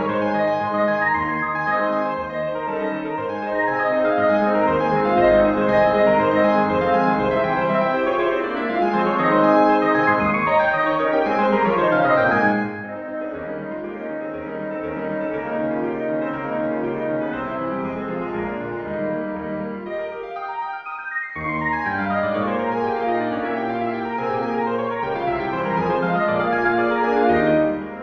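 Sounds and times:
keyboard music with held notes: 0:00.0 - 0:28.0.

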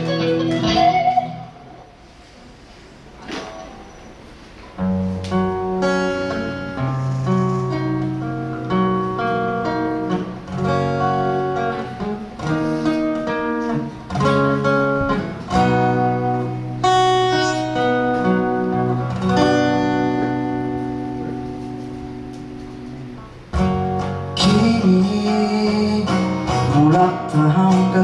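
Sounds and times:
acoustic guitar strumming chords: 0:00.0 - 0:01.8, 0:04.8 - 0:28.0
electric guitars playing: 0:00.0 - 0:02.1, 0:04.8 - 0:28.0.

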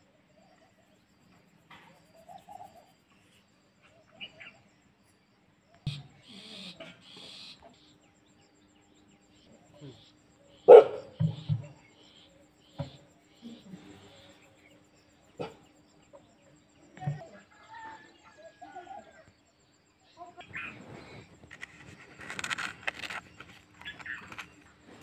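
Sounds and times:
scratchy rustle: 0:20.7 - 0:25.0.

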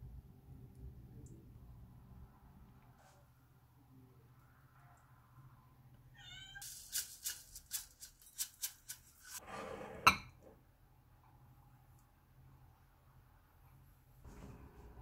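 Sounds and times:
cat meowing: 0:06.1 - 0:06.7
seed shaker rattling: 0:06.6 - 0:09.4.

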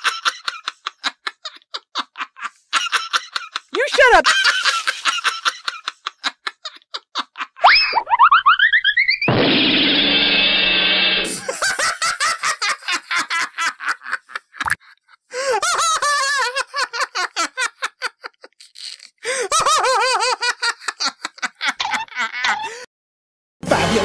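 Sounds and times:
cartoon laughter: 0:00.0 - 0:09.3, 0:11.3 - 0:18.6, 0:19.3 - 0:22.9
loud noisy sound effect: 0:09.3 - 0:11.4.

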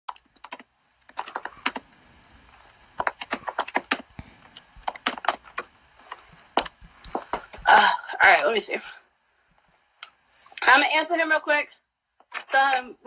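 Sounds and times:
keyboard typing: 0:00.1 - 0:01.9, 0:02.6 - 0:07.5.

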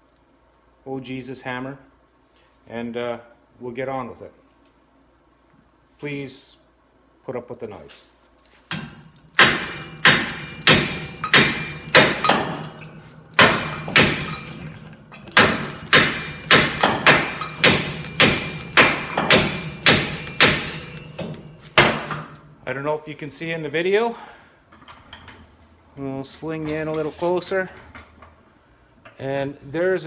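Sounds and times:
hammer striking steel: 0:08.7 - 0:22.3.

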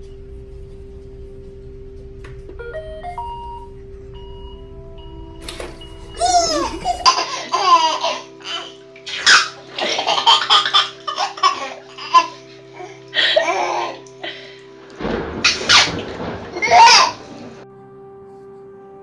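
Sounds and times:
background music: 0:00.0 - 0:19.0
baby laughing: 0:06.2 - 0:14.1, 0:16.6 - 0:17.3.

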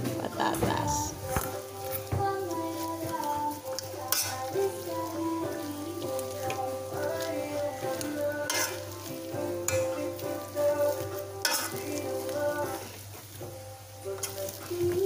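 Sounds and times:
quiet background music: 0:00.0 - 0:15.0
potato masher squishing potatoes: 0:01.3 - 0:12.7.

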